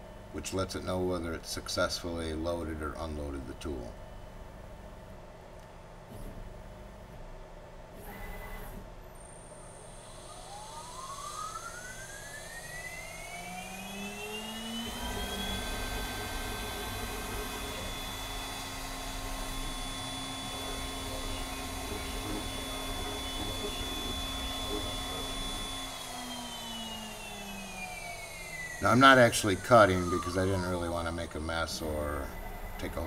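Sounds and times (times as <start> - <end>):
router spindle whine: 8.0 - 33.0.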